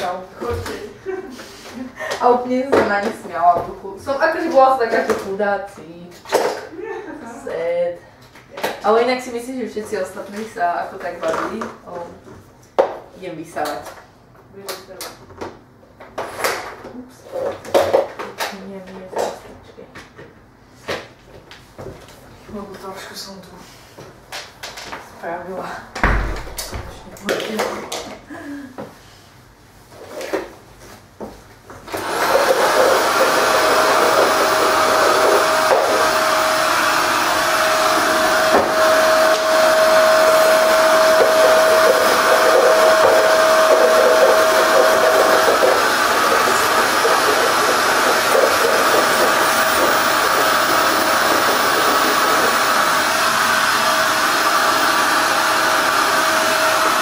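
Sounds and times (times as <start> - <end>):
knocks: 26.0 - 27.4
vacuum cleaner running: 31.8 - 57.0.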